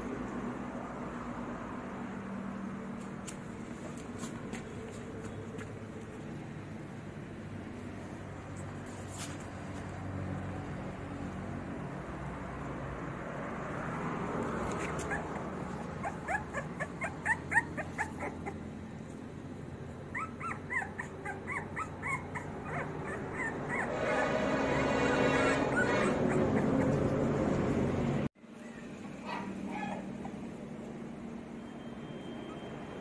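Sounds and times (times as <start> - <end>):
puppies whimpering: 14.7 - 18.8, 20.0 - 24.3, 25.4 - 27.5.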